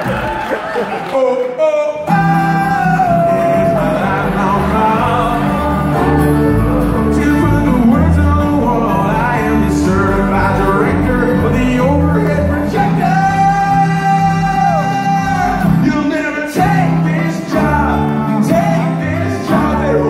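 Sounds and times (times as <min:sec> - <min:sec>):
acoustic guitar: 0:00.0 - 0:20.0
person singing: 0:00.9 - 0:20.0
bass notes: 0:02.1 - 0:16.0.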